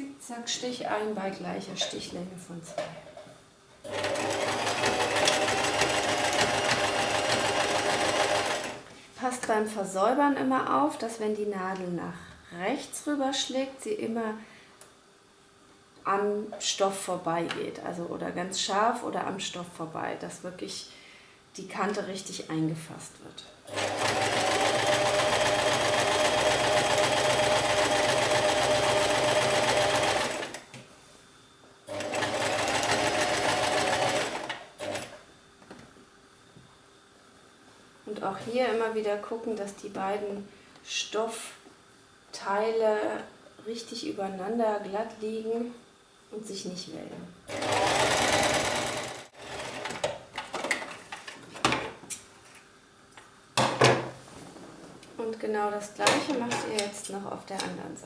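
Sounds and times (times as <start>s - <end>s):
sewing machine running: 3.9s - 8.8s, 23.7s - 30.6s, 31.9s - 35.2s, 47.5s - 50.0s.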